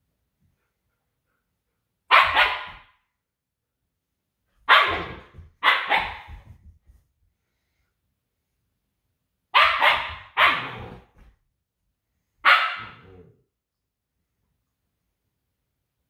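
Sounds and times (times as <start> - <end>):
dog barking: 2.1 - 3.0, 4.6 - 6.4, 9.5 - 10.8, 12.4 - 13.2.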